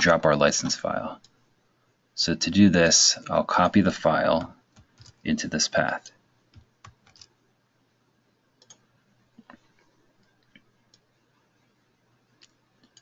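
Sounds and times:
computer mouse clicks: 0:06.5 - 0:07.3, 0:08.6 - 0:11.1, 0:12.4 - 0:13.0.

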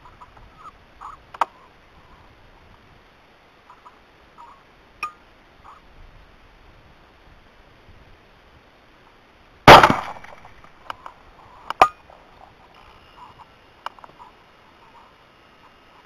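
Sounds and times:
rifle shot: 0:09.7 - 0:10.7.

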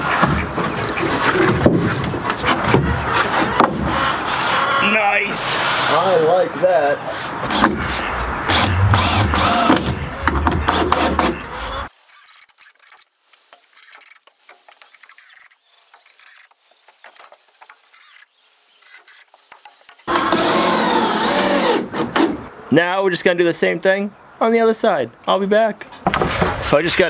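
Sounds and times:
cordless drill driving screws: 0:08.5 - 0:10.0, 0:10.7 - 0:22.3.

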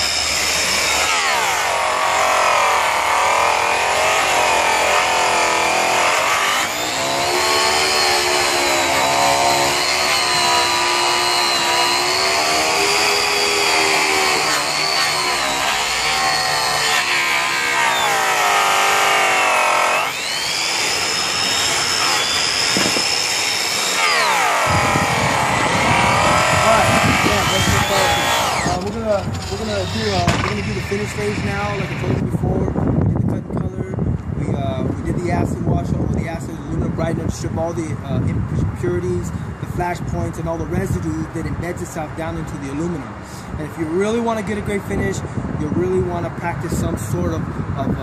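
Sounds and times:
polisher motor whine: 0:00.0 - 0:32.2.

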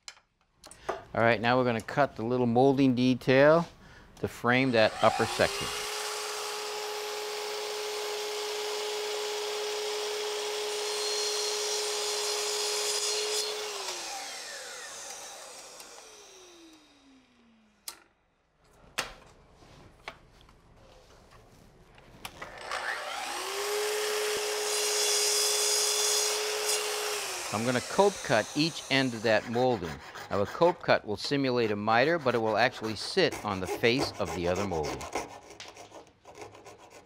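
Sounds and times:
saw winding down whine: 0:04.6 - 0:07.3, 0:13.4 - 0:17.8, 0:22.4 - 0:24.9, 0:26.4 - 0:29.8
miter saw cutting wood: 0:04.6 - 0:17.8, 0:22.4 - 0:36.9.

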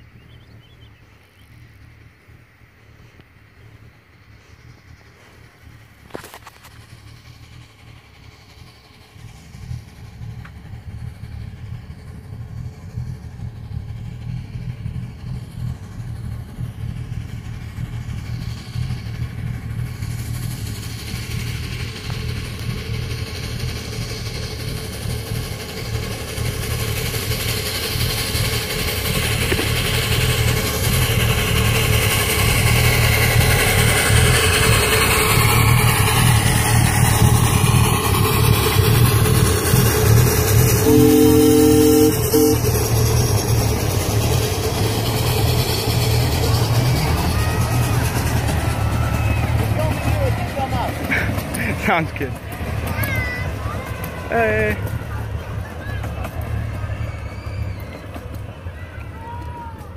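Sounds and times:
miniature locomotive running: 0:00.0 - 0:59.9
wheels rumbling on rails: 0:00.0 - 0:59.9.

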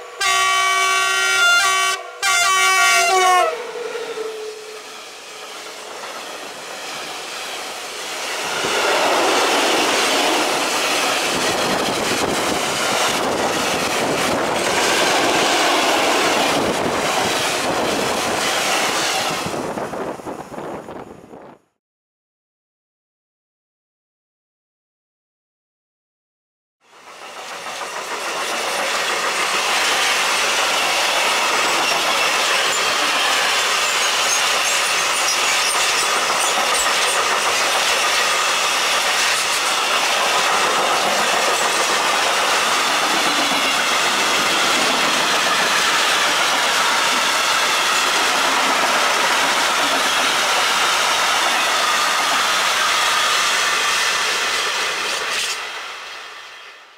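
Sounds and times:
freight train passing: 0:00.0 - 0:21.6, 0:26.8 - 0:56.9
steel wheels clattering on rail: 0:27.0 - 0:55.8.

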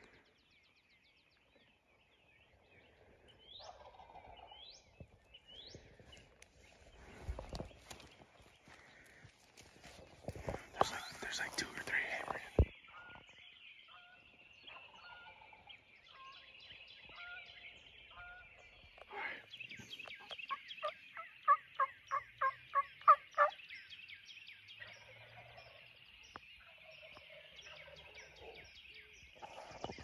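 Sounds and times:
songbirds singing: 0:00.0 - 0:30.0
turkeys calling: 0:03.7 - 0:04.4, 0:20.1 - 0:23.6.

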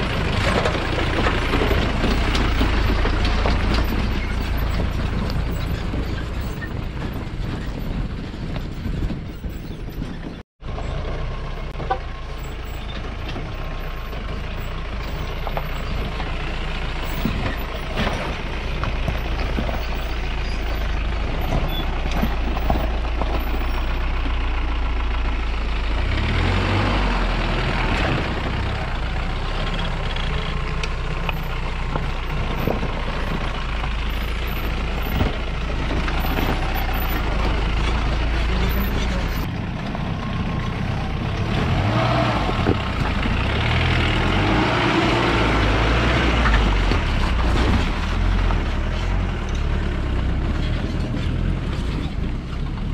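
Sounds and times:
knocks and rattles: 0:00.0 - 0:10.4, 0:11.7 - 0:24.4, 0:30.1 - 0:40.1
off-road vehicle engine pulling: 0:00.0 - 0:52.9.

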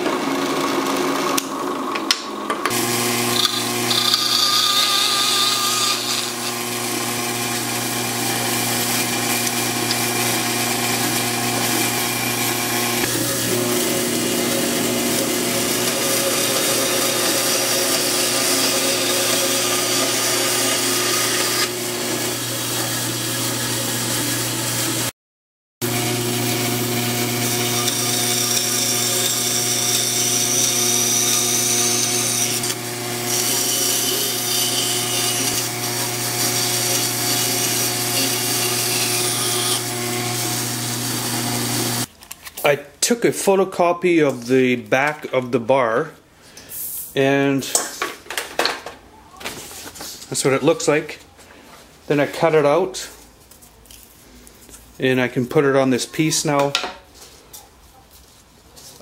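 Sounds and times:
bandsaw cutting wood: 0:02.7 - 0:25.1, 0:25.8 - 0:42.1.

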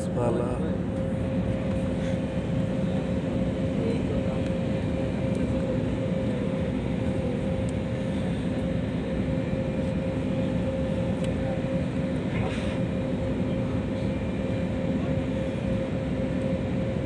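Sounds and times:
airliner cabin engine rumble: 0:00.0 - 0:17.0
steady hum: 0:00.0 - 0:17.0.

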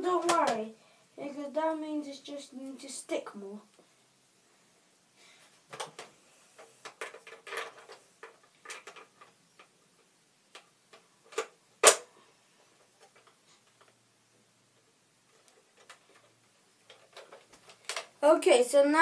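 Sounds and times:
plastic toy blaster clicks and rattles: 0:06.8 - 0:09.7, 0:11.3 - 0:12.1, 0:15.4 - 0:18.1
loud sharp plastic snap: 0:11.3 - 0:12.1.

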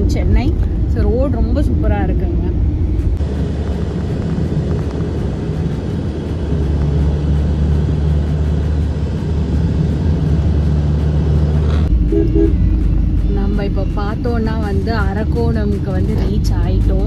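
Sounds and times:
car engine and tyres rumbling: 0:00.0 - 0:17.0
low hum: 0:00.0 - 0:17.0.

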